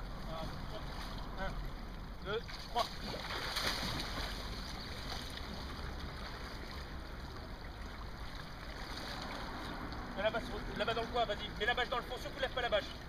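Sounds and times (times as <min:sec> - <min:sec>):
rushing water: 0:00.0 - 0:13.0
water splashing and sloshing: 0:00.0 - 0:13.0.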